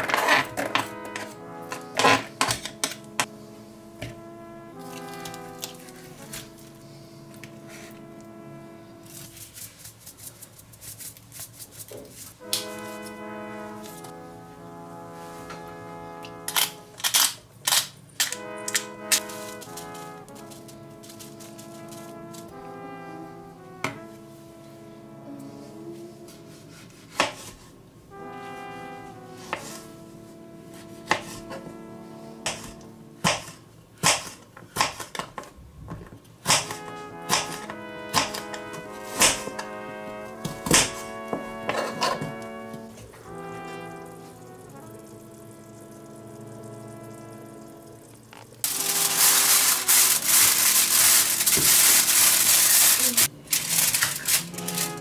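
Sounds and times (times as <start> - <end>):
background music: 0.0 - 9.5, 12.4 - 27.3, 27.9 - 33.7, 36.5 - 55.0
knife chopping on cutting board: 27.1 - 27.5, 31.1 - 31.4, 32.5 - 35.3, 36.5 - 38.4, 39.2 - 39.5.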